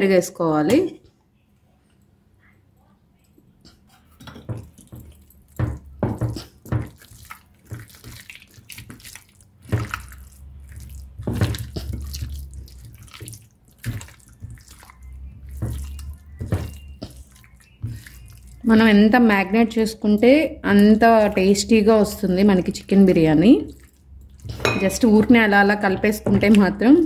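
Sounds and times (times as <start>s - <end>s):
hand squelching wet food: 4.1s - 19.4s, 20.7s - 26.9s.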